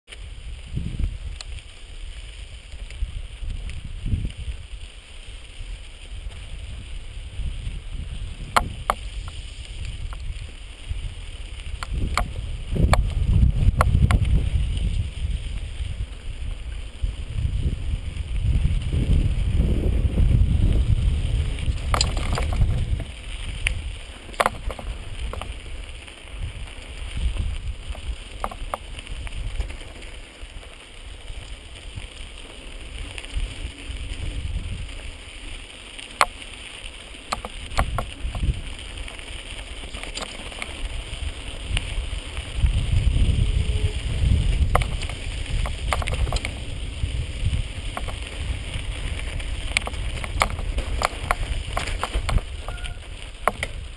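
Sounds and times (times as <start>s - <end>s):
bike clicks and rattles: 0.1s - 53.9s
wind buffeting microphone: 0.2s - 53.9s.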